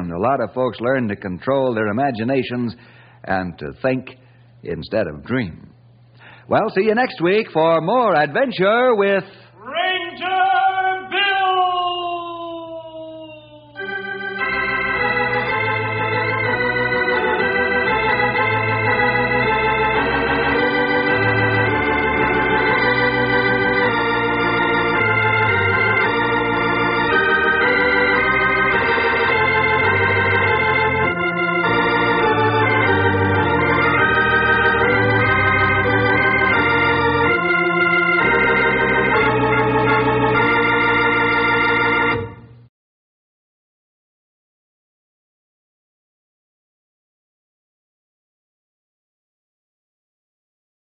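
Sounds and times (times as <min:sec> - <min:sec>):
organ playing held chords: 0:13.8 - 0:42.7.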